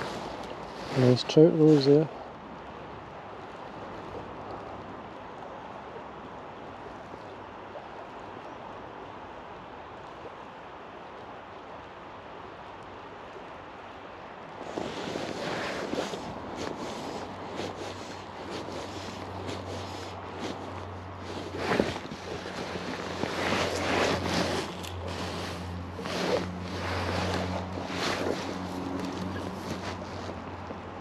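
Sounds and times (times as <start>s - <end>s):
river flowing: 0.0s - 31.0s.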